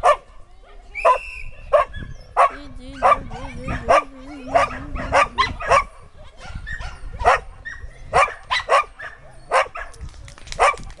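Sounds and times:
dog barking: 0.0 - 0.3, 1.0 - 10.0, 10.6 - 10.8.

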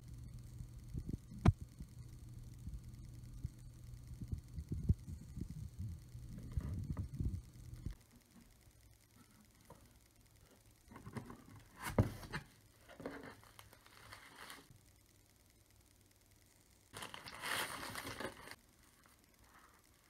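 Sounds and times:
packing paper crinkling: 12.9 - 14.7, 16.9 - 20.0.

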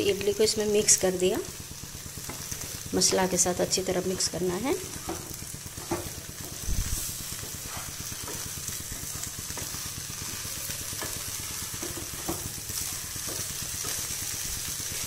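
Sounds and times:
food sizzling in oil: 0.0 - 15.0
spatula knocking on pan: 5.0 - 6.6, 11.0 - 12.5.

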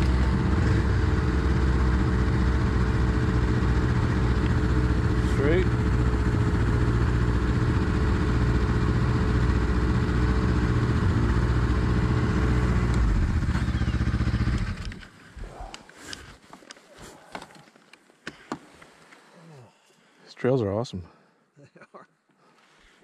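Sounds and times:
snowmobile engines idling: 0.0 - 17.7
faint clicks: 14.4 - 19.2.

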